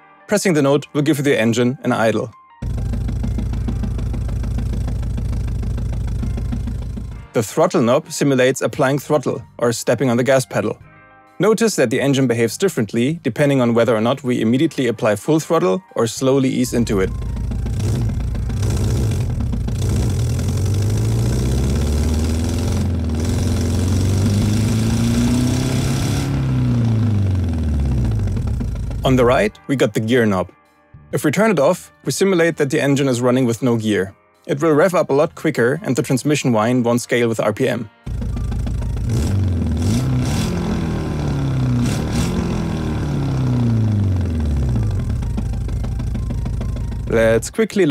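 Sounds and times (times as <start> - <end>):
synthesized engine revving: 2.6 - 7.3, 16.7 - 29.3, 38.1 - 47.4.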